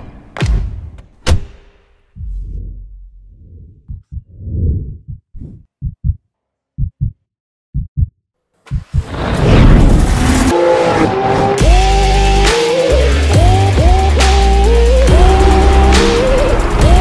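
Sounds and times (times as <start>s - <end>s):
deep heartbeat-like thumping: 2.2s - 9.2s.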